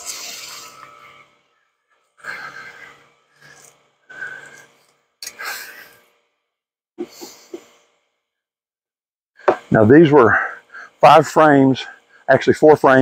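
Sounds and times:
man breathing out: 0:02.2 - 0:06.0.

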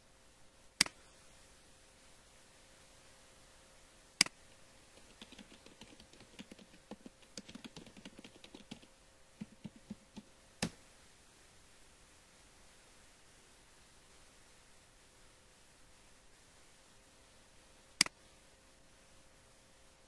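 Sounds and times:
typing on keyboard: 0:05.0 - 0:10.3.

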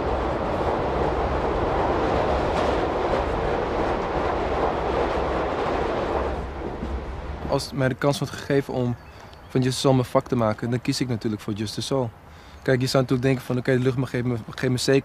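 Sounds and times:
train rumble from inside carriage: 0:00.0 - 0:08.8.

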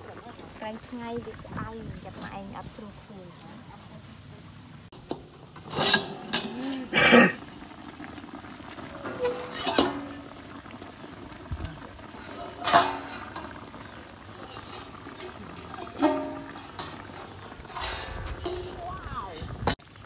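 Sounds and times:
food simmering: 0:00.0 - 0:20.0
metal spatula scraping wok: 0:05.6 - 0:06.6, 0:09.0 - 0:10.2, 0:12.1 - 0:13.6, 0:14.3 - 0:19.8.

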